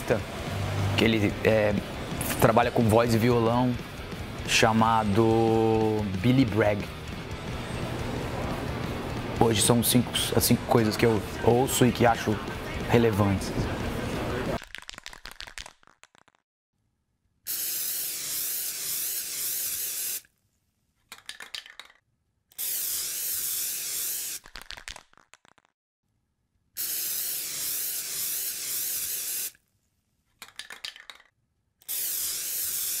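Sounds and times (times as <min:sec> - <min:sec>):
aerosol spray can hissing: 0:17.5 - 0:20.3, 0:22.5 - 0:24.8, 0:26.8 - 0:29.6, 0:31.8 - 0:33.0.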